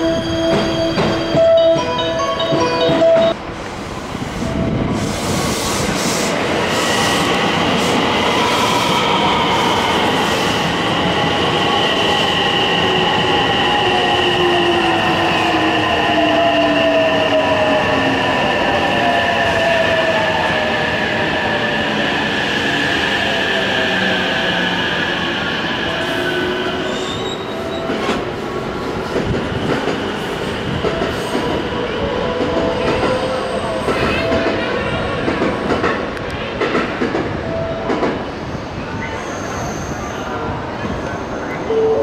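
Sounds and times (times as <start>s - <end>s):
high squeal: 25.8s - 28.0s, 38.6s - 42.0s.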